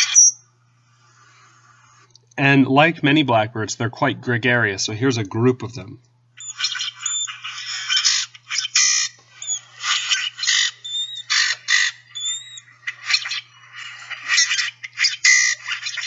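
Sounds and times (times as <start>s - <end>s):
grackles calling: 0.0s - 0.4s, 6.4s - 16.0s.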